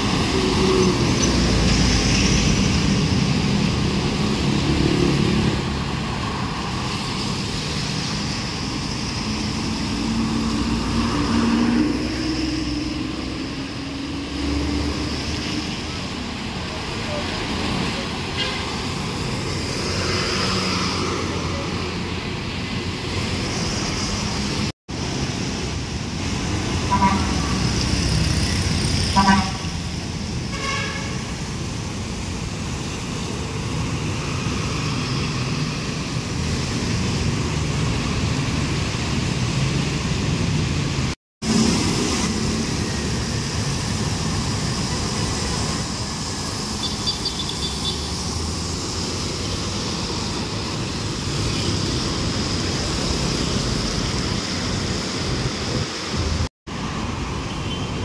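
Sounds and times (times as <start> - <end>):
street traffic passing: 0.0 - 58.0
vehicle horn tooting: 29.2 - 29.7, 30.5 - 31.2.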